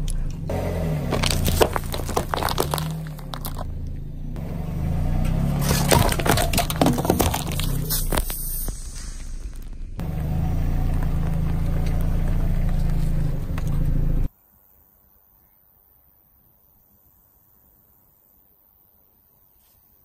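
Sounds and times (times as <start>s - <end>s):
car engine running low: 0.0s - 14.3s
tyre crushing plastic cups: 1.0s - 3.8s, 5.6s - 9.8s
cans crunching and bursting: 1.1s - 3.7s, 5.6s - 10.1s.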